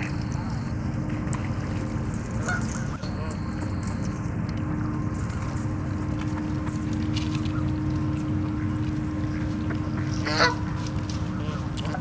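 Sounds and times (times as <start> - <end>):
steady low rumble: 0.0 - 12.0
geese honking: 1.6 - 4.2, 6.0 - 12.0.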